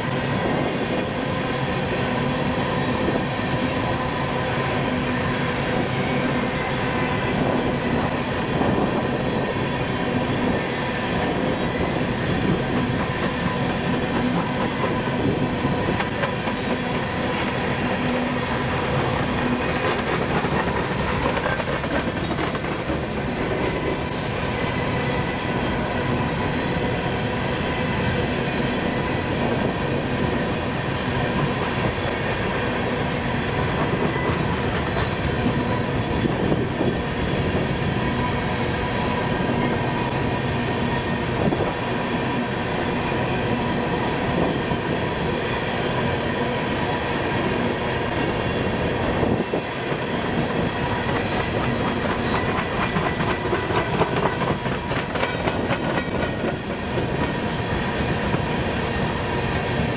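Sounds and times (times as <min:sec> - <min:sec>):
train wheels clattering over rails: 0:11.2 - 0:25.4, 0:30.7 - 0:38.3, 0:49.2 - 0:59.9.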